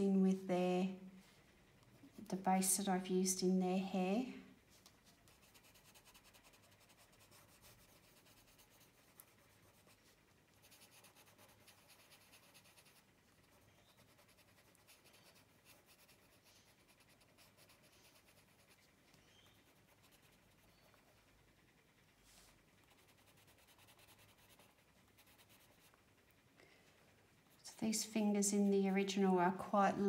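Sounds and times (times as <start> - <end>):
pencil scratching on paper: 4.8 - 21.3, 22.3 - 26.0.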